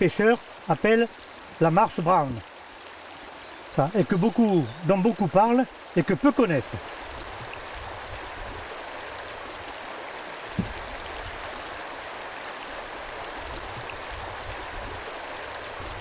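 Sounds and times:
stream water running: 0:00.0 - 0:16.0
low thump: 0:10.5 - 0:11.0.

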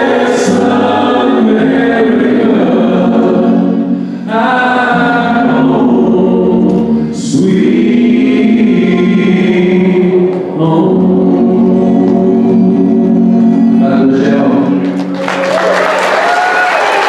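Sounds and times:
people singing: 0:00.0 - 0:14.9
acoustic guitar: 0:00.0 - 0:15.5
applause: 0:14.8 - 0:17.0.

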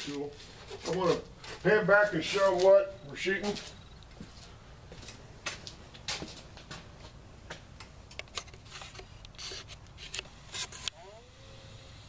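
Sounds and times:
camera handling rustles: 0:08.1 - 0:11.0.

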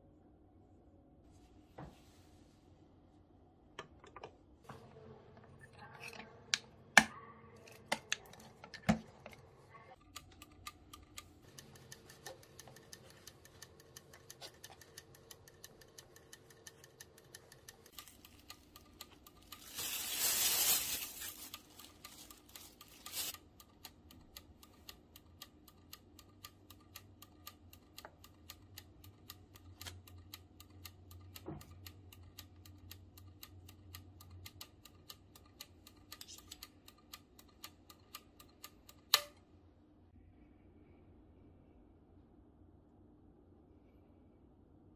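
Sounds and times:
dial timer ticking: 0:09.2 - 0:39.4
sharp clicks: 0:21.6 - 0:39.4.

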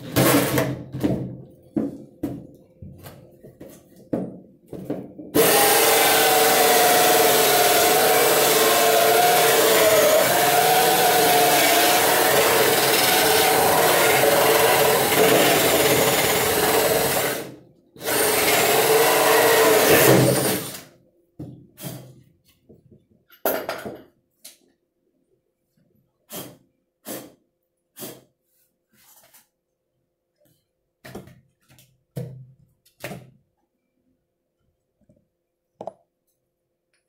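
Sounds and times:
power drill cutting wood: 0:05.4 - 0:20.9.

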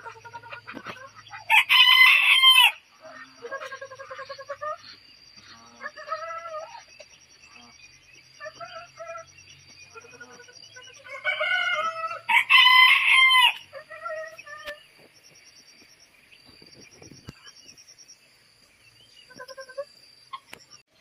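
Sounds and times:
rooster crowing: 0:01.5 - 0:02.8, 0:11.1 - 0:13.7.

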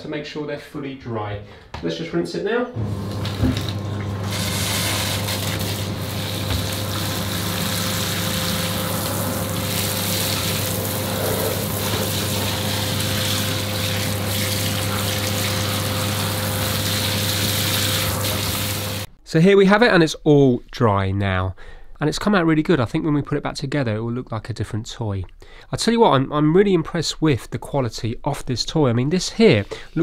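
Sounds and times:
shower head spraying water: 0:02.8 - 0:19.1.

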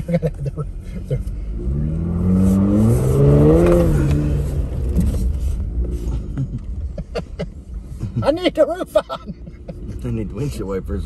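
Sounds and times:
car engine revving: 0:00.0 - 0:08.0.

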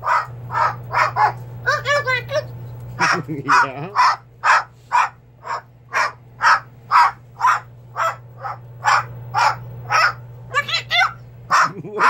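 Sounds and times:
cockatoo squawking harshly: 0:00.0 - 0:02.0, 0:03.0 - 0:11.7.

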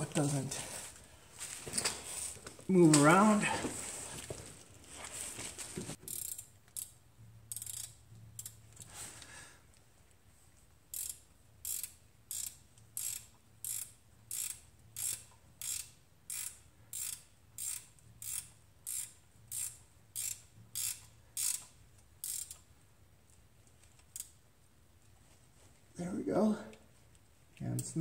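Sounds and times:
hand ratchet clicking: 0:06.0 - 0:08.9, 0:10.9 - 0:22.7, 0:23.8 - 0:24.4, 0:27.8 - 0:28.0.

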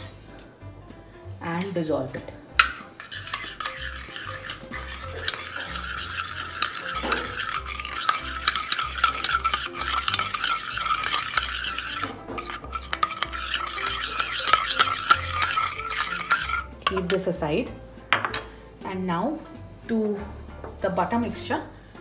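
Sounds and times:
spoon stirring in metal bowl: 0:02.2 - 0:17.5, 0:18.1 - 0:18.5.

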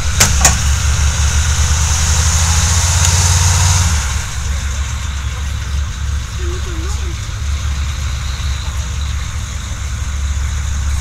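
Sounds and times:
diesel engine running hard: 0:00.0 - 0:11.0
sharp knocks: 0:00.2 - 0:00.7.

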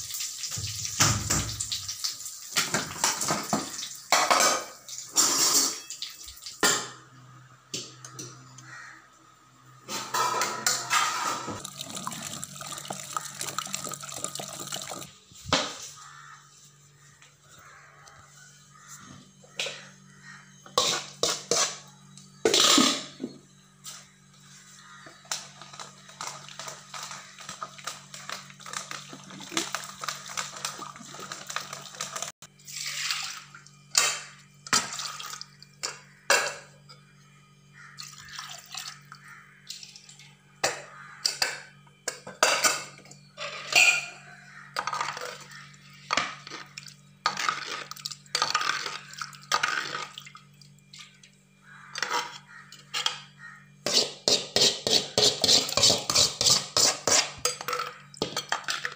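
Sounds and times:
metal utensil scraping vessel: 0:53.8 - 0:57.7.

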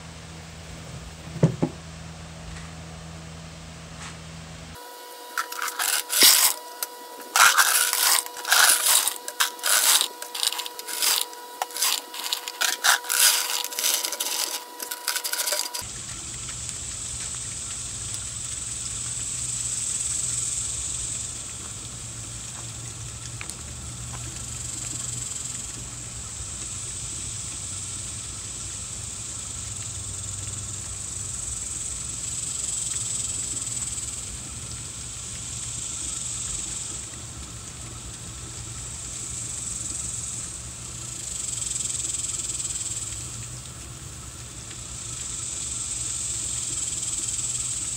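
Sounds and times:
gas fountain flame hissing: 0:04.8 - 0:47.9
rocks poured into wooden bucket: 0:05.4 - 0:15.8.

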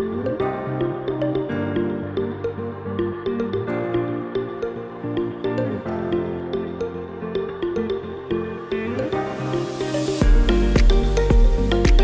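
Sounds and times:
light background music melody: 0:00.0 - 0:12.0.

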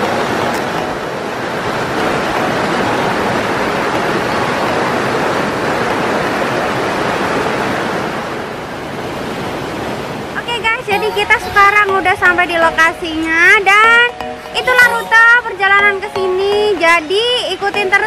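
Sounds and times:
waterfall and stream rushing: 0:00.0 - 0:18.0.

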